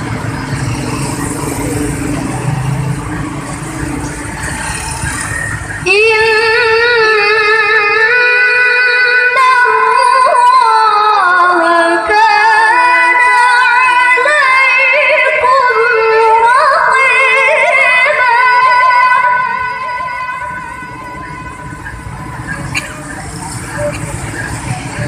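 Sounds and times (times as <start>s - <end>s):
woman reciting melodically: 5.8s - 20.7s.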